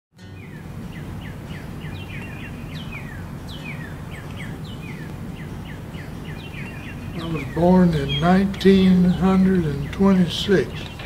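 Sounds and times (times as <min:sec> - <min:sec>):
birds chirping: 0:00.2 - 0:11.0
low background rumble: 0:00.3 - 0:11.0.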